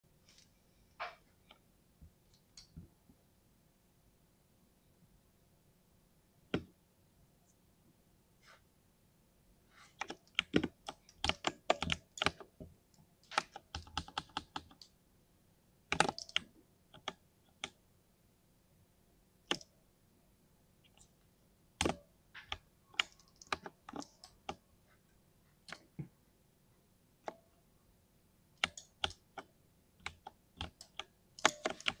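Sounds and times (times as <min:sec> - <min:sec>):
mechanical keyboard typing: 0:10.0 - 0:12.5, 0:13.2 - 0:14.9, 0:15.9 - 0:17.8, 0:21.8 - 0:24.6, 0:28.6 - 0:32.0.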